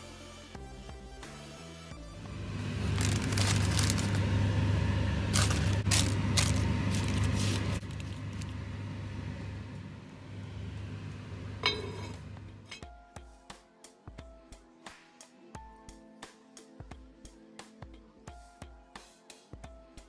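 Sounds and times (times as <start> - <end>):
steady low hum: 2.1 - 12.8
parchment paper crinkling: 2.6 - 4.4, 5.3 - 8.6
pot lid clink: 11.6 - 12.8.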